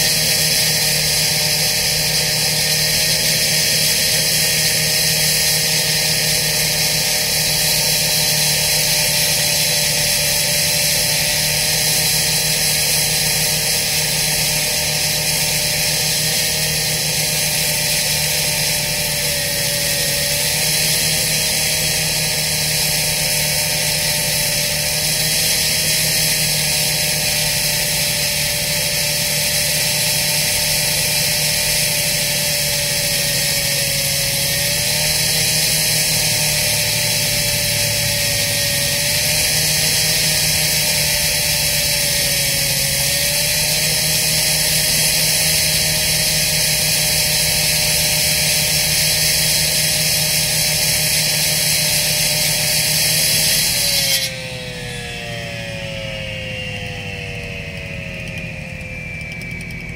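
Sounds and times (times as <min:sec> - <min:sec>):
wavering machine whine: 0:53.6 - 0:59.9
diesel engine drone: 0:54.5 - 0:59.9.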